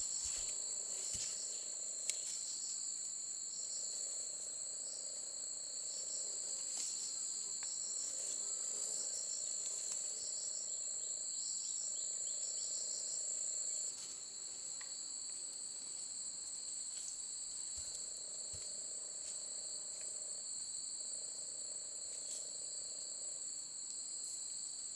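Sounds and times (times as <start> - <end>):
insects trilling: 0.0 - 18.9.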